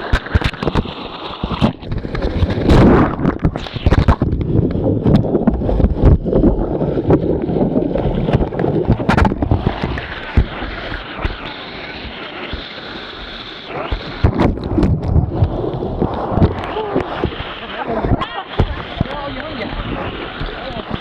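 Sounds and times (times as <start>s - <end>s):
wind buffeting microphone: 1.5s - 12.1s, 13.8s - 21.0s
river rapids rushing: 16.2s - 21.0s.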